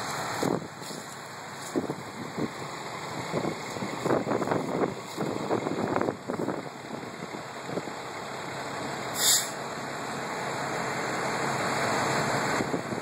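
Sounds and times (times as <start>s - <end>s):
fire truck engines running: 0.0s - 13.0s
compressed air hiss: 9.1s - 9.6s.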